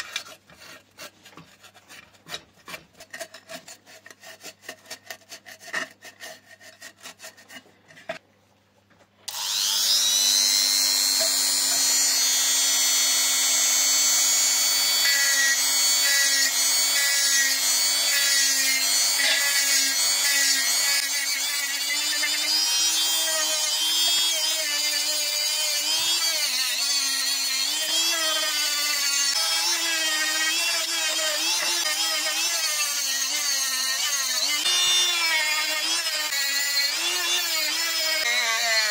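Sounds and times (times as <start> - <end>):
hand filing strokes: 0.0 - 8.2, 9.3 - 38.9
electric power tool whine: 9.3 - 38.9.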